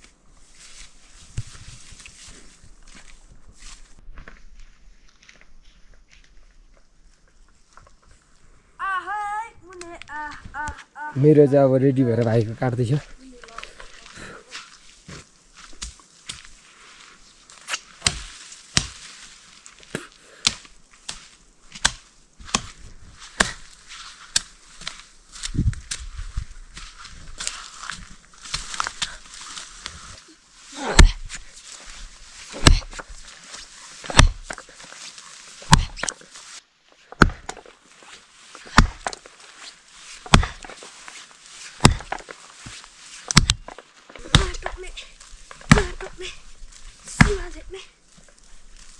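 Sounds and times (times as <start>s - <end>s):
footsteps through undergrowth: 0.0s - 8.7s, 11.9s - 48.9s
axe chopping tree trunk: 17.7s - 19.1s, 19.9s - 23.7s, 30.8s - 31.4s, 32.5s - 33.2s, 34.0s - 34.7s, 35.6s - 36.2s, 37.1s - 37.7s, 38.6s - 39.3s, 40.2s - 40.8s, 41.8s - 42.3s, 43.2s - 44.8s, 45.5s - 46.2s, 47.1s - 47.6s.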